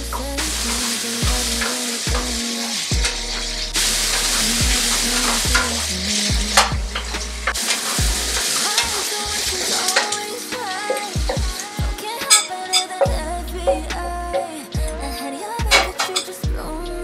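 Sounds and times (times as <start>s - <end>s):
food sizzling in a frying pan: 0.4s - 11.6s.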